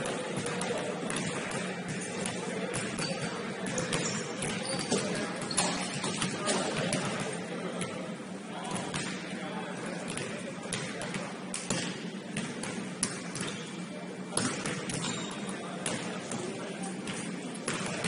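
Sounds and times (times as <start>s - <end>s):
players' voices: 0.0s - 18.0s
basketballs bouncing on hardwood: 0.4s - 6.3s.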